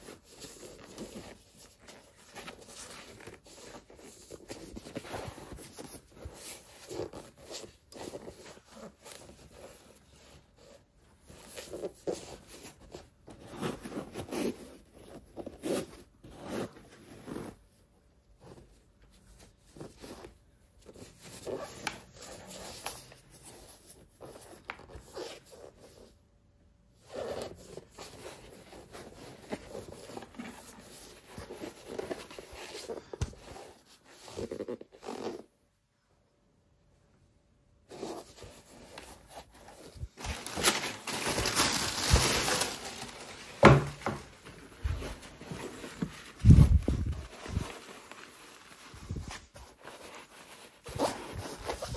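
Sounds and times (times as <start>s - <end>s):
packaging rustling and scraping: 0.0s - 17.8s, 27.0s - 35.5s, 37.9s - 51.9s.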